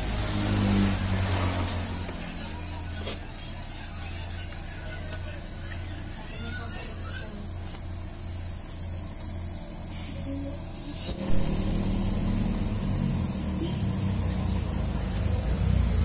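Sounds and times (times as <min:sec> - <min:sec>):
machine humming: 0:00.0 - 0:16.0.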